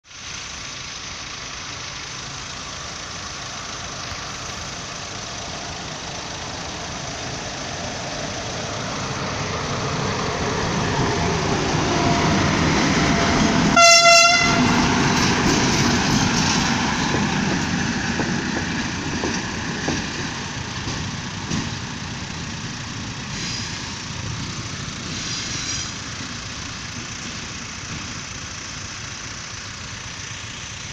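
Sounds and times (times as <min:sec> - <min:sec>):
electric locomotive passing: 0:00.2 - 0:30.9
locomotive horn blast: 0:13.2 - 0:16.4.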